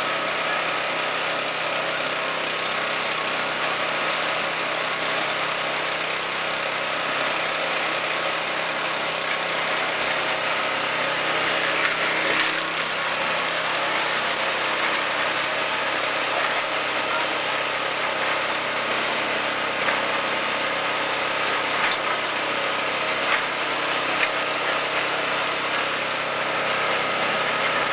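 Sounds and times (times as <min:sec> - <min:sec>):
concrete mixer engine droning: 0:00.0 - 0:27.9.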